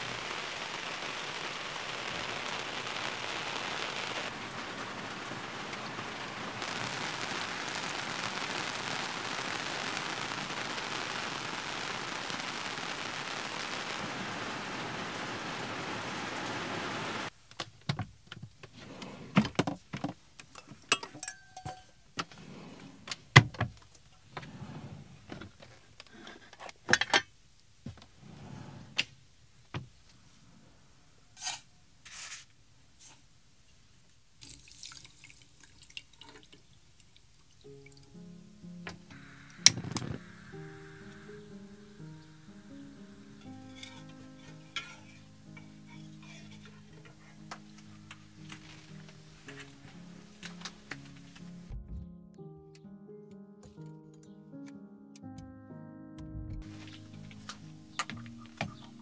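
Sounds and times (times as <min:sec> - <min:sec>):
rain on an awning: 0:00.0 - 0:17.4, 0:34.4 - 0:38.2, 0:38.8 - 0:51.5, 0:56.6 - 0:59.0
water pouring into a pot: 0:34.4 - 0:38.2.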